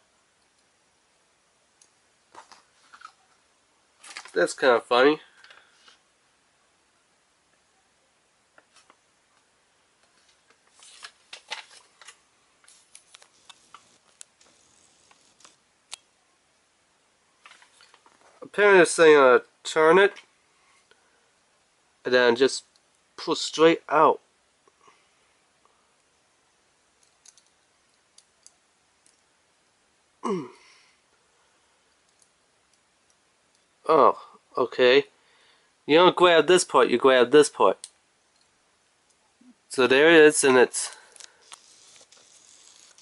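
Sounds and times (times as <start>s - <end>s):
small clicks of objects handled: 8.6s - 16.1s, 27.0s - 29.3s, 31.9s - 33.7s.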